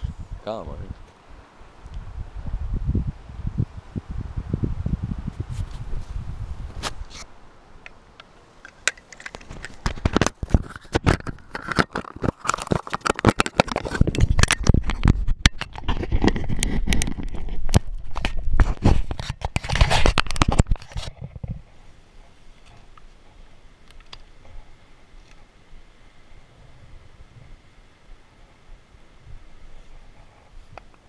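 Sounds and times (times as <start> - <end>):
fingers rubbing on microphone: 5.2 - 7.3, 9.4 - 21.7.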